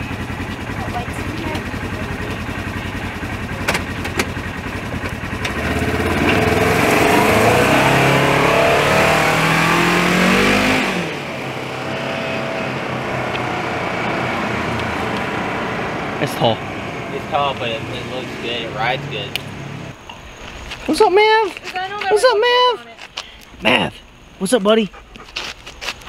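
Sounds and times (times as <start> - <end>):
utility vehicle engine revving: 0.0 - 20.0.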